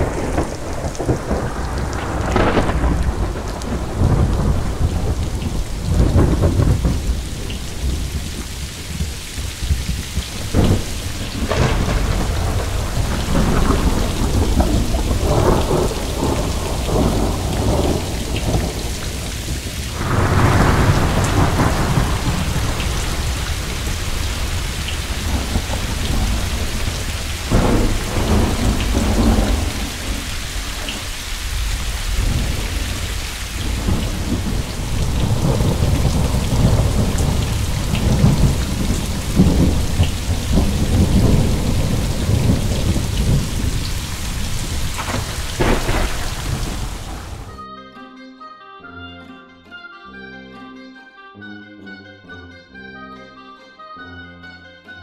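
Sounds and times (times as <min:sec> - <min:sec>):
rumbling thunder: 0:00.0 - 0:47.5
steady rain: 0:00.0 - 0:47.6.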